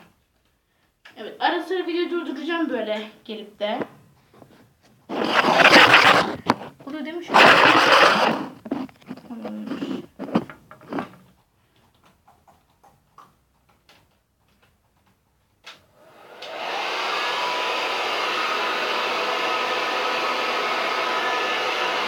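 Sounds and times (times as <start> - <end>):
hair dryer blowing: 5.1 - 6.6, 7.3 - 8.8, 16.0 - 22.0
hair dryer switch click: 16.4 - 16.6.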